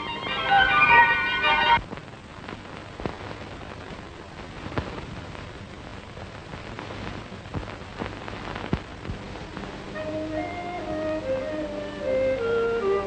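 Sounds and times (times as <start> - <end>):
film soundtrack hiss and crackle: 0.0 - 13.0
sharp pops: 1.8 - 9.8.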